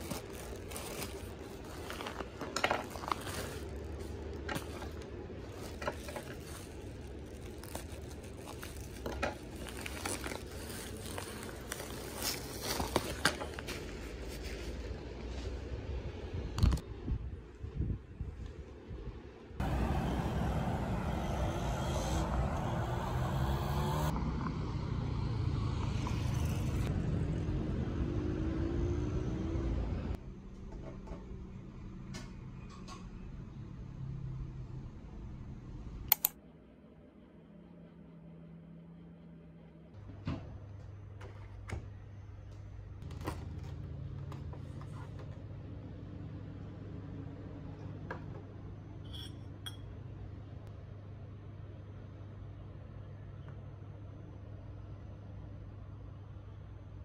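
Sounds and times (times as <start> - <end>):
road traffic passing: 0.0 - 16.4, 19.6 - 30.5
engine note rising: 19.6 - 30.2.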